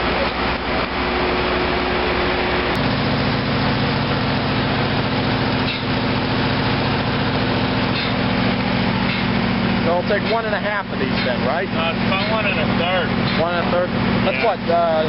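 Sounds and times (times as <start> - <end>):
air compressor engine humming: 0.0 - 15.0
steady engine drone: 0.0 - 15.0.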